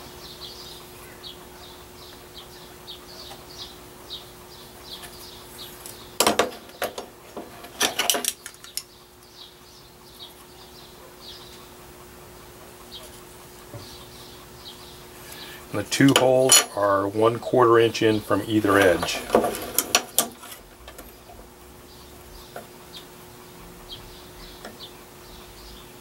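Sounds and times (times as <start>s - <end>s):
faint steady hum: 0.0s - 26.0s
metal parts clinking on wood: 6.2s - 8.8s, 16.1s - 16.8s.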